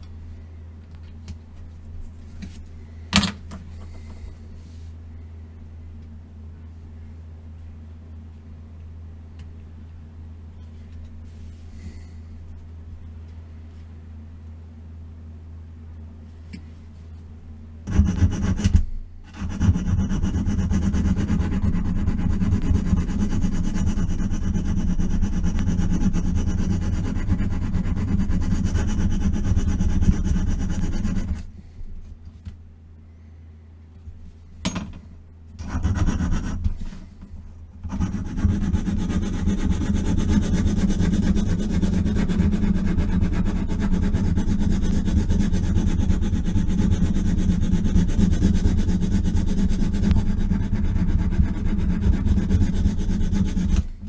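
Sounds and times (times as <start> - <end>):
hand file rasping on metal: 17.9 - 31.5, 35.6 - 36.8, 37.8 - 53.9.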